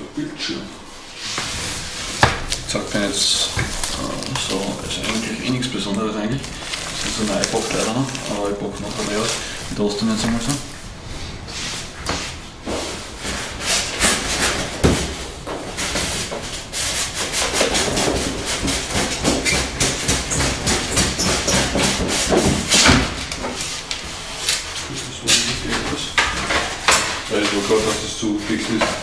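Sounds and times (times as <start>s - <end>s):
cardboard rubbing and scraping: 6.4s - 23.9s, 24.7s - 29.0s.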